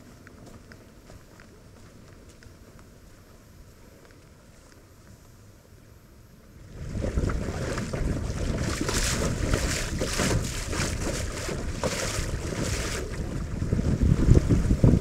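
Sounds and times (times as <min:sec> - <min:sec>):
water rushing along boat hull: 0:06.6 - 0:15.0
wind buffeting microphone: 0:06.6 - 0:15.0.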